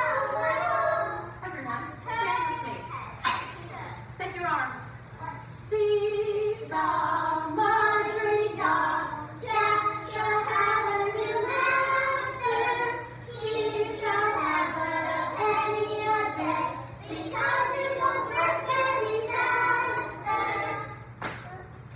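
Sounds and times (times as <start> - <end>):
children singing in unison: 0.0 - 1.3, 6.6 - 21.0.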